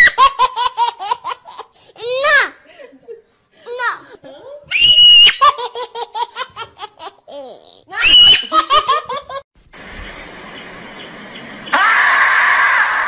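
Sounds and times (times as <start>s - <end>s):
high-pitched squealing giggles: 8.0s - 9.4s
steady hiss: 9.6s - 11.7s.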